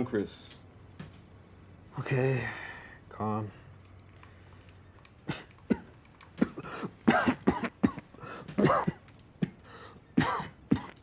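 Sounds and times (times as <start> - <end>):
man coughing: 5.2 - 11.0.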